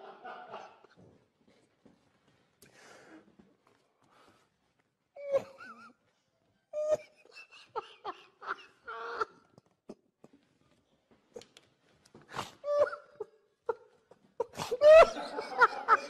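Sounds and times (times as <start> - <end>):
man laughing: 7.0 - 9.6, 14.8 - 16.0.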